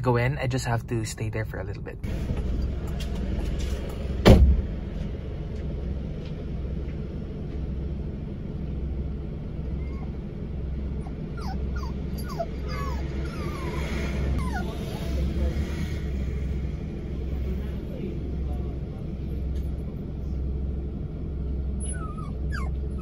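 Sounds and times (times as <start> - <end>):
idling car hum: 0.0 - 23.0
car door shutting: 3.6 - 4.7
dog whimpering: 9.7 - 10.2, 10.9 - 15.3, 21.8 - 23.0.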